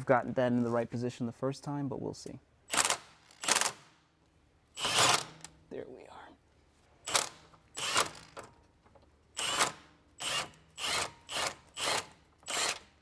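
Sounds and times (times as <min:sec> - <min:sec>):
hand ratchet clicking: 0:09.4 - 0:13.0.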